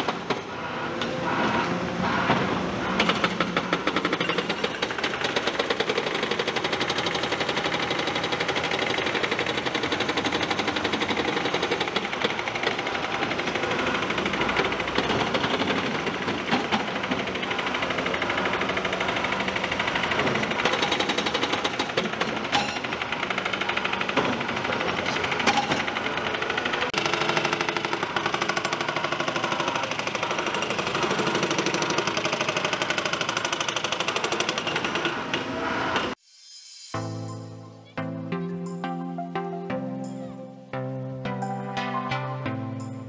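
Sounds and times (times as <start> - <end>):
excavator engine running: 0.0 - 35.3.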